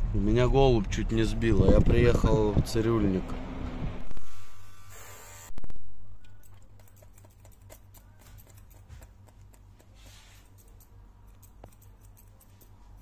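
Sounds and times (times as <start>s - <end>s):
scissors snipping hair: 6.2s - 13.0s.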